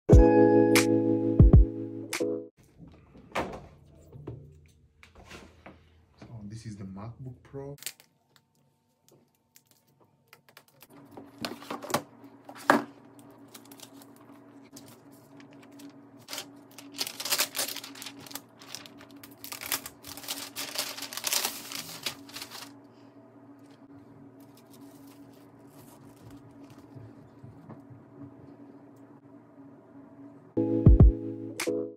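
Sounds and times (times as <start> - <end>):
paper wrapping rustling: 9.2 - 22.8, 24.4 - 27.5.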